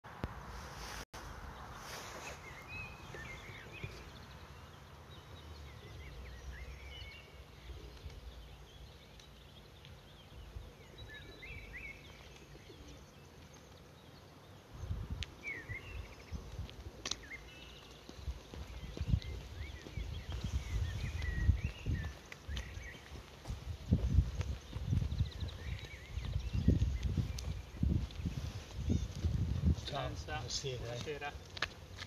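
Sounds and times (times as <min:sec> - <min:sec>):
small birds chirping: 0:00.7 - 0:32.0
wind rumble on microphone: 0:14.7 - 0:17.0, 0:18.0 - 0:31.0.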